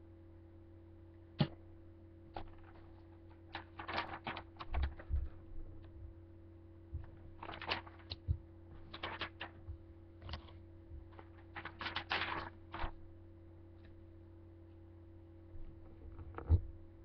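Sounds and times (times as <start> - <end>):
faint steady hum: 0.0 - 17.0
paper crackling and rustling: 2.3 - 5.4, 7.0 - 13.0.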